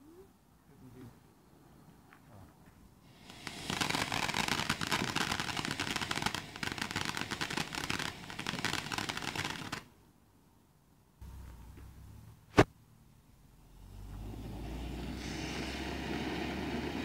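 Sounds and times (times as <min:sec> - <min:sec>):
firework fountain crackling: 0:03.0 - 0:10.0, 0:14.7 - 0:17.0.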